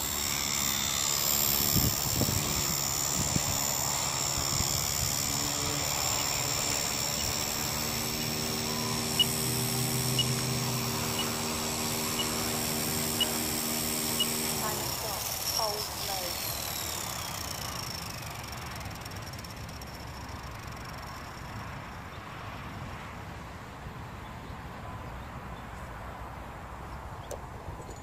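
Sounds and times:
rc helicopter rotors whining: 0:00.0 - 0:22.2.

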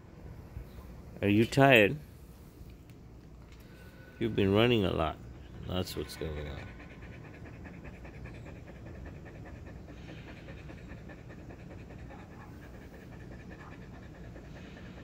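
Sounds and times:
dog panting rapidly: 0:05.8 - 0:15.0.

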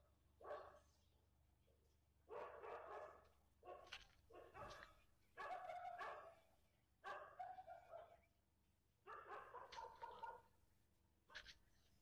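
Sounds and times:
faint dog barking: 0:00.4 - 0:00.9, 0:02.3 - 0:08.3, 0:09.1 - 0:10.5.

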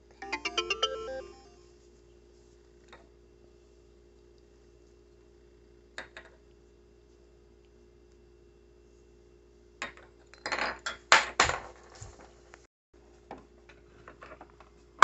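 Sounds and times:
faint steady hum: 0:00.0 - 0:11.2.

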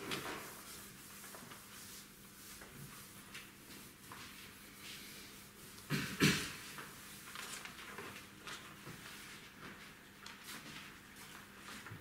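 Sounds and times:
chalkboard being wiped: 0:00.0 - 0:07.3.

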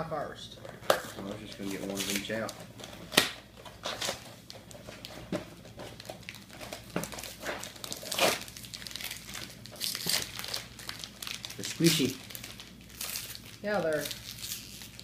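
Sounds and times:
plastic wrappers crinkling and tearing: 0:00.6 - 0:15.0
cardboard boxes tearing: 0:07.1 - 0:09.1.

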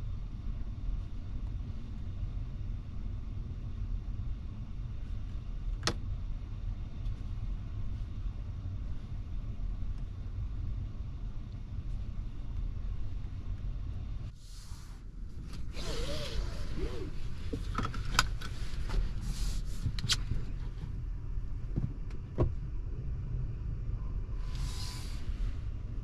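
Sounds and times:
low rumble: 0:00.0 - 0:26.0
rustling in car cabin: 0:14.4 - 0:22.6.

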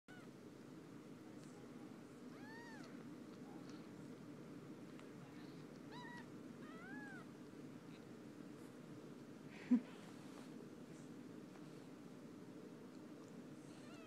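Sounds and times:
kittens mewing: 0:02.3 - 0:03.0, 0:05.9 - 0:07.4.

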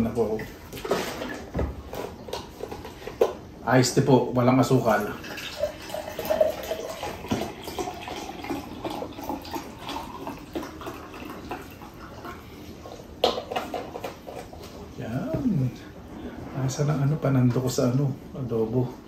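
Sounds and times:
liquid pouring into glass: 0:05.0 - 0:14.4.

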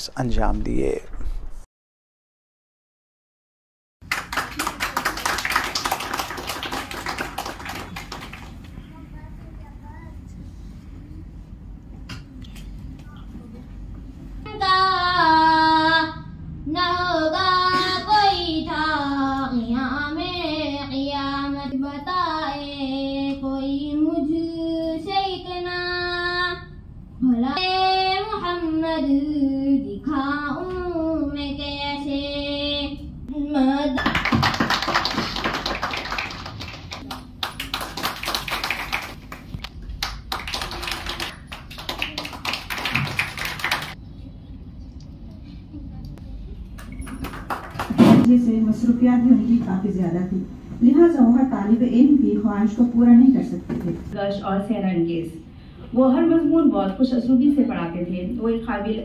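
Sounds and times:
audience applause: 0:04.0 - 0:08.6, 0:34.0 - 0:44.0, 0:46.9 - 0:48.0.

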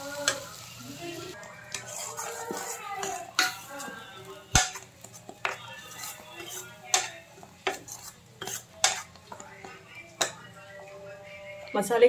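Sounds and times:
metal spoon scraping a pan: 0:01.3 - 0:10.5.

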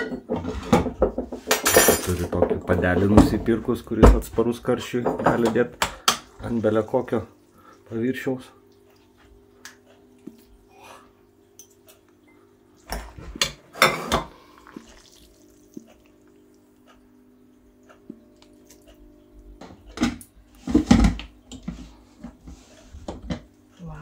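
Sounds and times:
steady low hum: 0:02.7 - 0:24.0.

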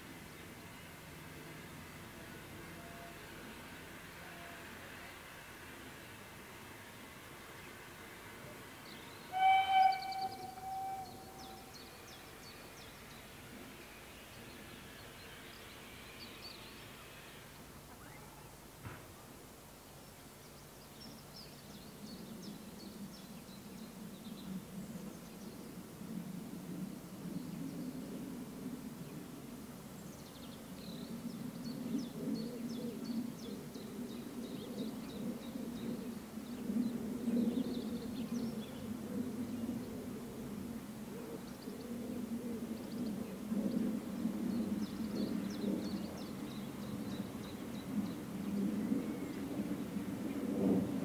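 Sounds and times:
steam locomotive rumble: 0:00.1 - 0:17.7
small birds chirping: 0:08.8 - 0:13.5
distant steam locomotive whistle: 0:09.1 - 0:12.7.

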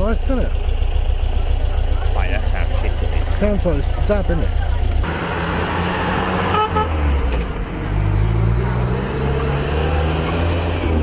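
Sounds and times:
car engine droning: 0:00.0 - 0:11.0
car horn toot: 0:06.4 - 0:07.1.

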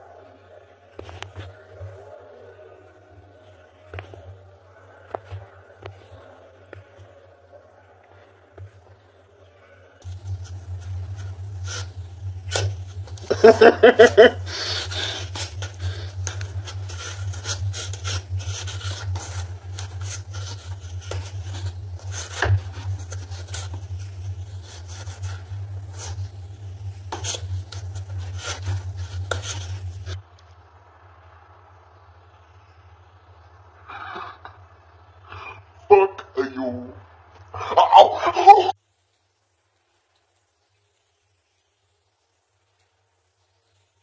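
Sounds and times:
low hum: 0:00.0 - 0:44.0
cat claws scratching cardboard: 0:10.0 - 0:30.2.

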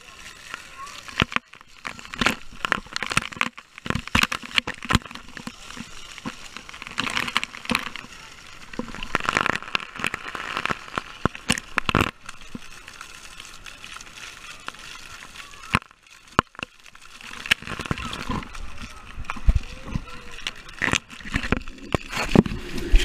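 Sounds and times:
water rushing: 0:00.0 - 0:23.0
water sloshing and bubbling: 0:00.0 - 0:23.0.

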